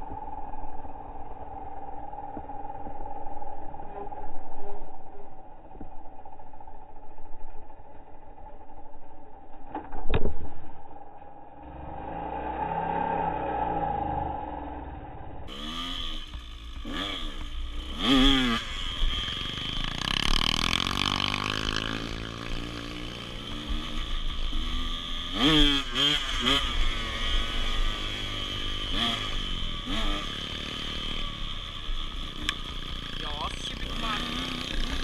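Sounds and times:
dirt bike engine revving: 0:11.6 - 0:35.0.

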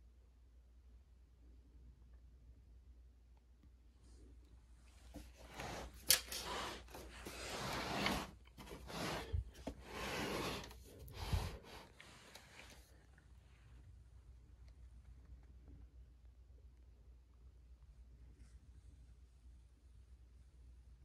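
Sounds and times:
rubbing and scraping on carpet: 0:04.9 - 0:13.0.

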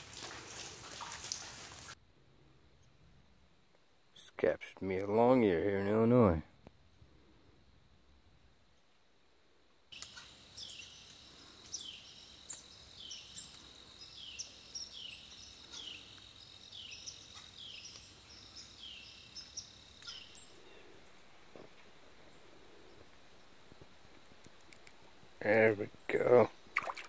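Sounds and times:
songbirds singing: 0:09.9 - 0:27.0.

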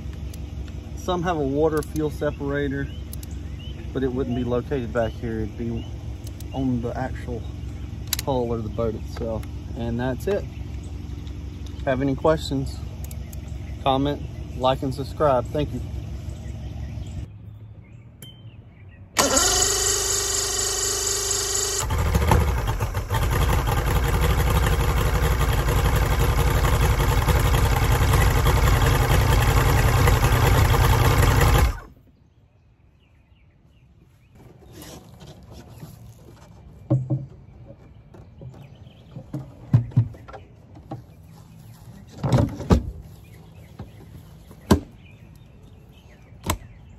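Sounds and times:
engine cowling clunks: 0:00.0 - 0:17.3, 0:42.0 - 0:45.5
electric starter cranking: 0:19.2 - 0:31.9
outboard engine running: 0:19.2 - 0:31.9.

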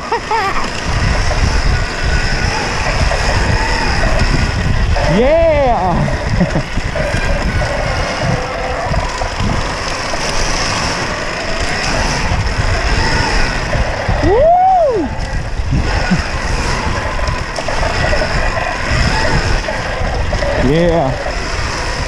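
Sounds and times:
wind and rolling noise: 0:00.0 - 0:22.0
person whooping: 0:14.1 - 0:15.3.

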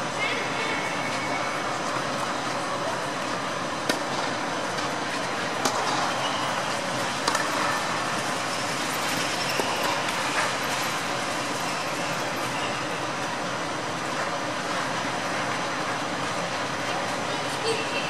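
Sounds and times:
steady rushing background noise: 0:00.0 - 0:18.0
tennis balls struck by rackets: 0:07.2 - 0:07.6.

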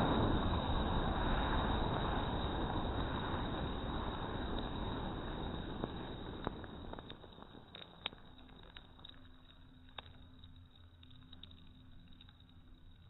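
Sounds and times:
gunpowder burning rushing noise: 0:00.0 - 0:08.2
sharp crackles: 0:00.0 - 0:13.0.

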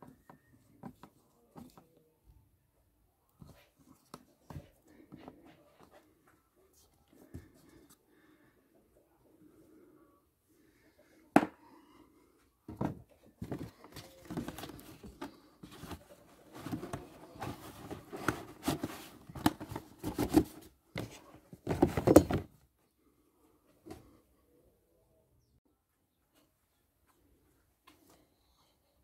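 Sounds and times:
cardboard rustling and scraping: 0:12.7 - 0:22.5.

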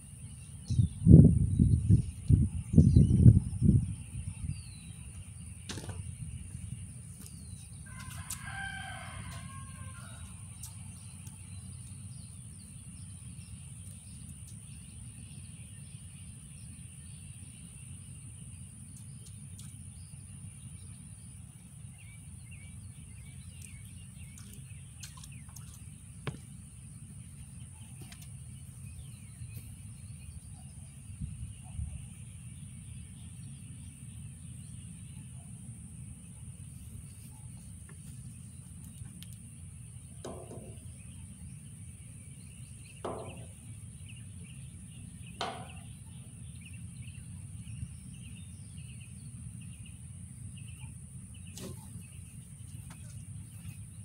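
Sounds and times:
low outdoor rumble: 0:00.0 - 0:54.0
rooster crowing faintly: 0:07.9 - 0:10.6.

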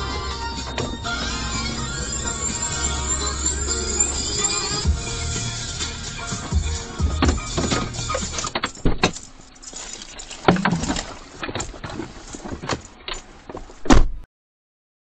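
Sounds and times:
knocks and clicks: 0:06.5 - 0:09.3.

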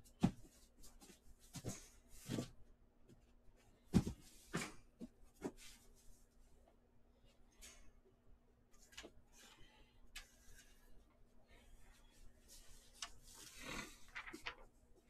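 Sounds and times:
handling knocks and rustles: 0:03.8 - 0:05.8.

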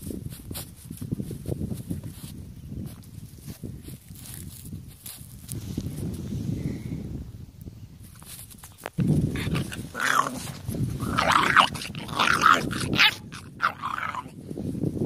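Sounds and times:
puppy growling: 0:09.3 - 0:14.4.

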